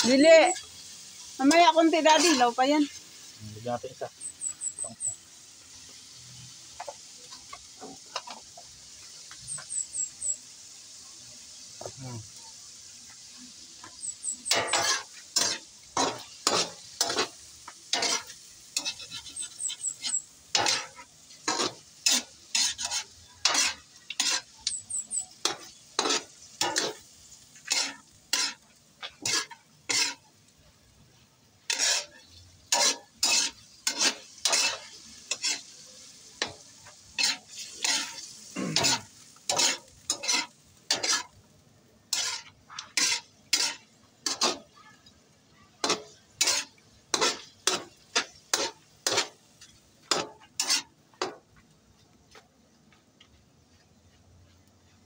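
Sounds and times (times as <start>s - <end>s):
meat sizzling: 0.0s - 55.0s
metal ladle scraping a wok: 0.4s - 3.4s, 13.8s - 30.3s, 31.1s - 41.4s, 42.1s - 44.8s, 45.8s - 51.4s.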